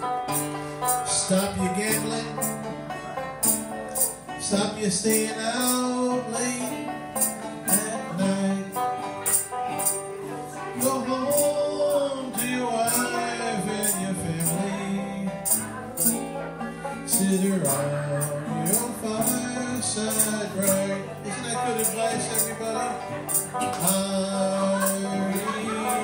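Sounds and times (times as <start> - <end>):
banjo strumming: 0.0 - 26.0
percussion strokes: 0.3 - 2.6, 3.4 - 4.3, 7.2 - 8.0, 9.2 - 10.2, 15.4 - 16.3, 17.1 - 20.9, 21.8 - 24.1
man singing: 0.9 - 2.7, 4.0 - 26.0.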